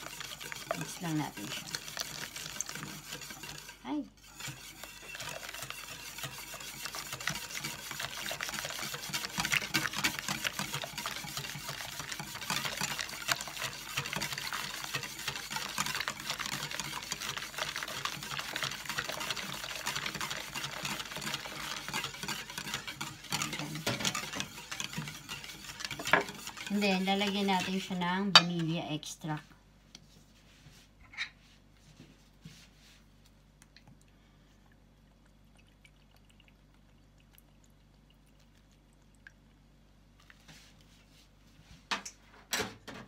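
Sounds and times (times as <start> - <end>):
whisk clicking against metal bowl: 0.0 - 28.8
milk pouring: 33.6 - 40.4.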